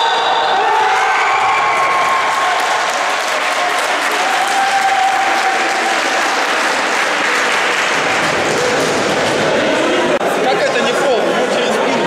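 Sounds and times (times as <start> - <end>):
spectators clapping: 0.9 - 10.2.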